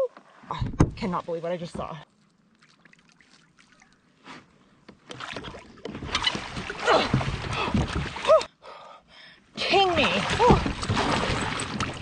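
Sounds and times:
fish splashing in water: 0:02.1 - 0:04.1.

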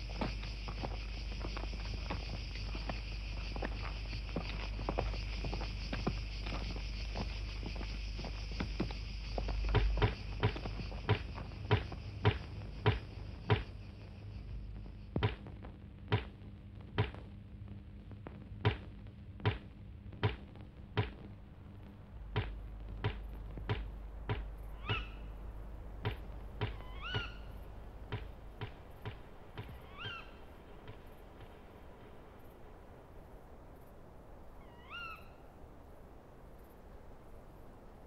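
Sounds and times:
bird chirping: 0:24.6 - 0:25.5, 0:26.1 - 0:31.1, 0:34.6 - 0:35.5.

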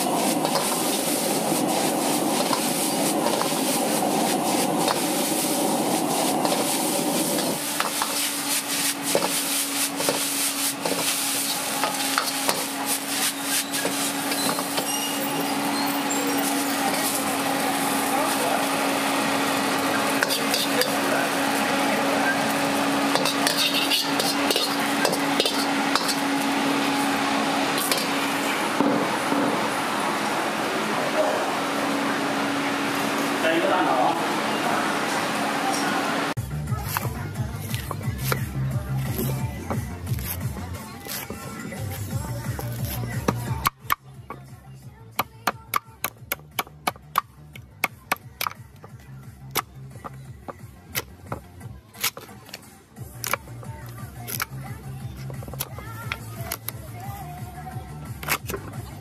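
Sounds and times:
metal ladle scraping wok: 0:00.0 - 0:17.3, 0:20.1 - 0:21.1, 0:22.3 - 0:26.6, 0:27.7 - 0:28.4
cleaver chopping coconut: 0:36.8 - 0:38.5, 0:39.1 - 0:41.5, 0:42.5 - 0:44.4, 0:45.2 - 0:52.6.

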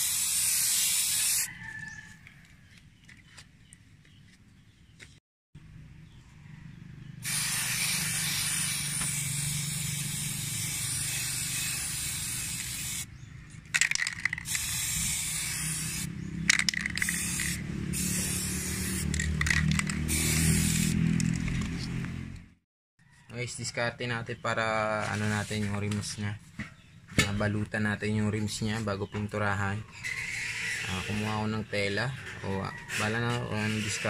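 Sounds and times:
spray paint can hissing: 0:00.0 - 0:01.5, 0:07.2 - 0:13.1, 0:13.8 - 0:21.6, 0:30.2 - 0:31.3.

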